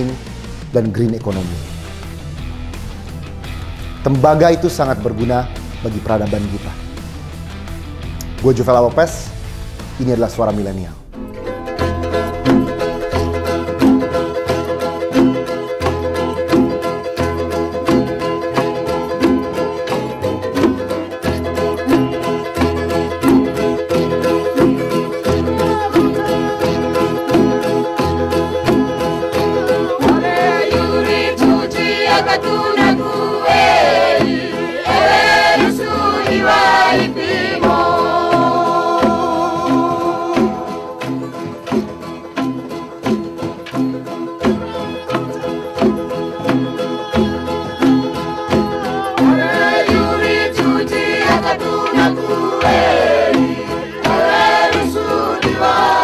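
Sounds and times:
music with beat and bass: 0.0s - 56.0s
people singing: 11.2s - 15.6s, 24.1s - 41.6s, 44.1s - 56.0s.

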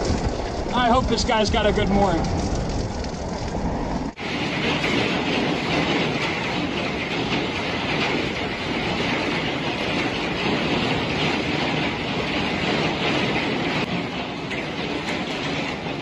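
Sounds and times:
storm wind roaring: 0.0s - 16.0s
rain against windows: 4.1s - 16.0s.

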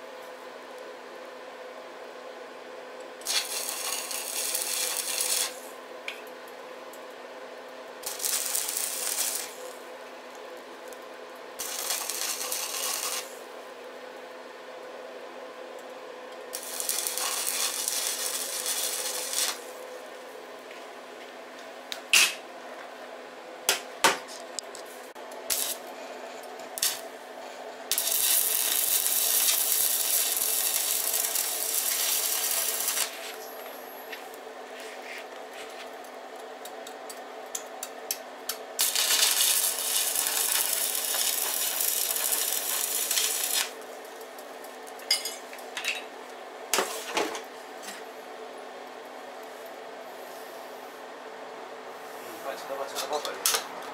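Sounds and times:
welding arc crackling and sizzling: 3.2s - 5.8s, 8.0s - 9.9s, 10.9s - 13.5s, 16.4s - 20.0s, 23.8s - 45.8s.

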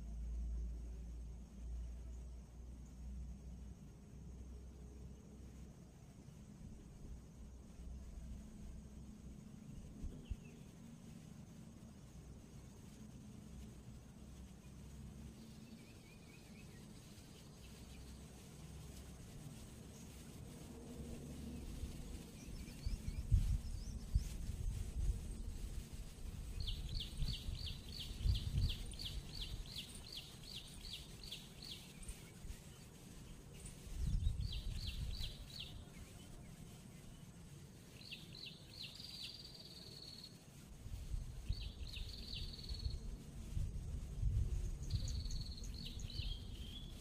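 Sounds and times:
wind rumble on microphone: 0.0s - 47.0s.

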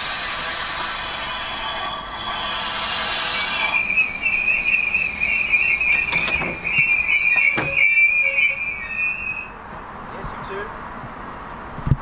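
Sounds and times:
hiss: 0.0s - 4.0s
train wheel squeal: 0.0s - 9.9s, 11.0s - 11.6s.

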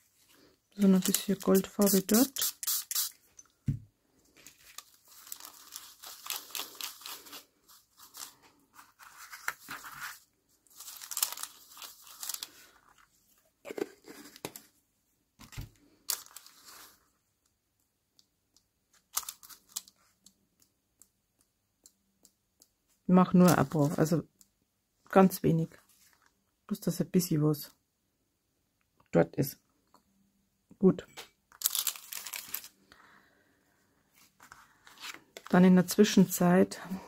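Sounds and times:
brush rustling on paper: 0.0s - 3.2s, 4.4s - 14.7s, 16.1s - 17.1s
small clicks and taps: 20.2s - 22.8s.

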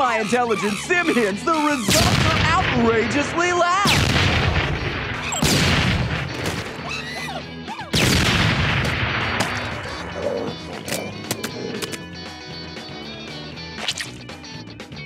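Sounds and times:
monkey shrieks: 0.0s - 2.6s, 6.8s - 8.0s
background music: 0.0s - 15.0s
loud explosions: 1.9s - 6.5s, 8.0s - 9.9s.

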